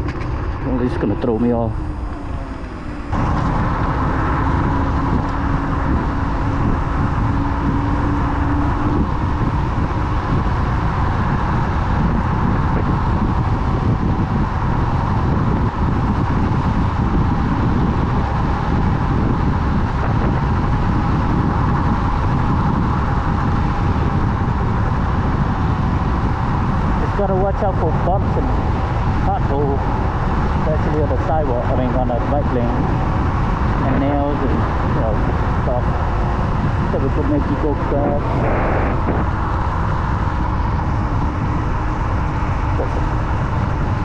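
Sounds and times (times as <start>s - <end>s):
scooter tyre noise: 0.0s - 27.0s
steady whine: 0.0s - 44.0s
wind rushing over microphone: 0.0s - 44.0s.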